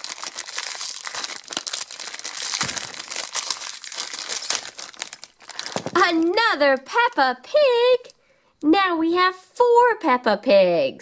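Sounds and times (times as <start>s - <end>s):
plastic bag crackling: 0.0s - 6.6s
plastic packet crinkling: 0.0s - 7.2s.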